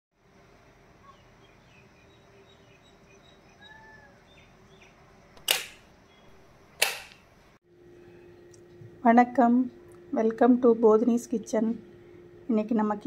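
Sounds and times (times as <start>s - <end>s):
faint chirping: 0.9s - 6.4s
sharp shutter-like clicks: 5.4s - 5.9s, 6.8s - 7.2s.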